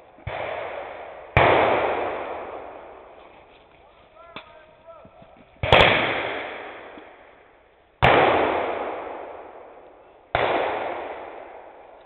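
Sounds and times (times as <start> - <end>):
blank gunshots: 0.2 - 3.2, 5.6 - 7.2, 8.0 - 12.0.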